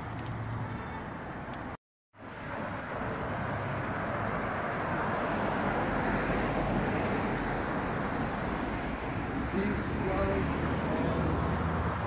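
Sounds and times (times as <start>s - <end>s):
passing cars: 0.0s - 12.0s.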